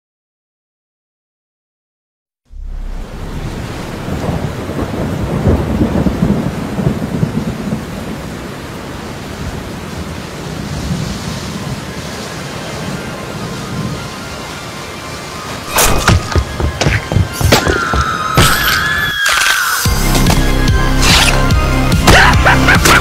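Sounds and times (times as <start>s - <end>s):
steady rain: 2.5s - 17.3s, 21.6s - 23.0s
rolling thunder: 2.6s - 8.8s.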